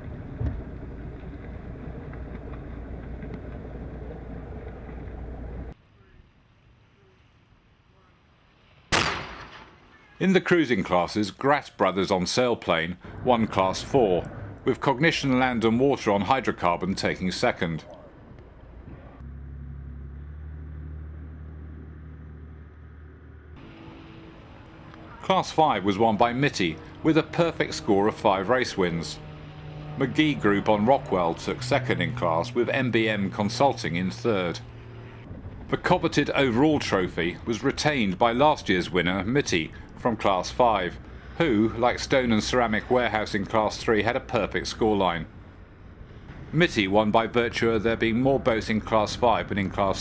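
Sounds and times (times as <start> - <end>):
motorboat engine droning: 18.5 - 35.3
wind rumbling on microphone: 35.1 - 38.0.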